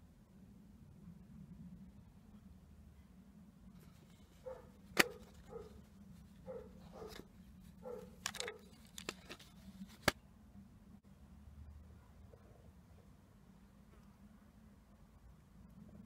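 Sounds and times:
cassette tapes clicking and knocking: 4.8s - 5.7s, 6.9s - 10.2s
plastic case creaking: 6.8s - 10.2s.

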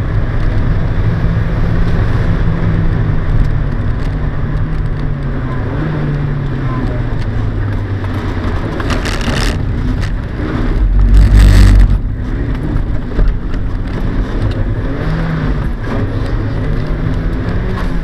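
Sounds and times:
car engine revving: 0.0s - 18.0s
loud rush of noise: 8.3s - 15.9s.

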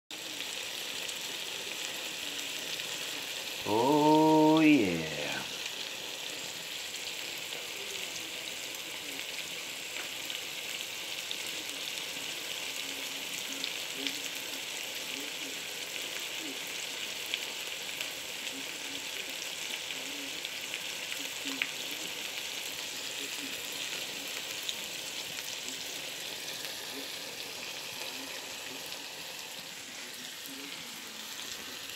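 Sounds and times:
food sizzling in hot fat: 0.1s - 31.9s.

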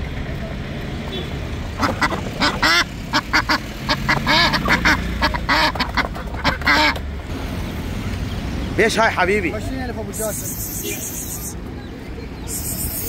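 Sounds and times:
ducks quacking: 1.8s - 7.0s.

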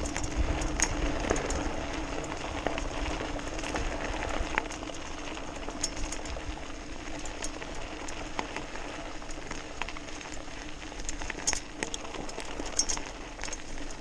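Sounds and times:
low motor hum: 0.0s - 14.0s
tyres crunching on gravel: 0.0s - 14.0s
ticks and rattles: 11.0s - 14.0s.

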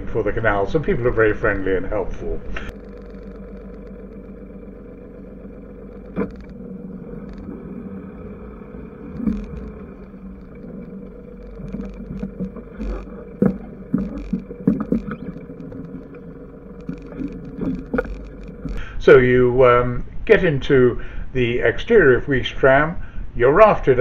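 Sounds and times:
boat engine running: 0.0s - 18.9s
knocks and scrapes of hull: 2.6s - 18.8s.

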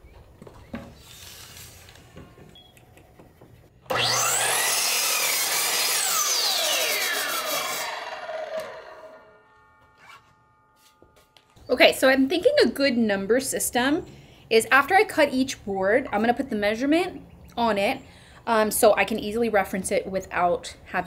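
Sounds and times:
miter saw cutting wood: 1.0s - 2.0s, 3.9s - 11.0s.

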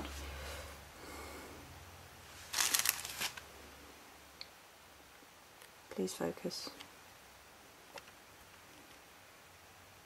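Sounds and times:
plastic bag crinkling: 2.3s - 3.5s.

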